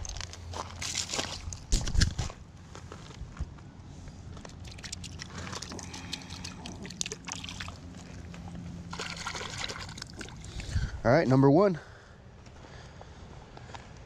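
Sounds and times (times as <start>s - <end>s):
gravel clicks and crunches: 0.0s - 11.4s
water sloshing and splashing: 4.4s - 10.9s.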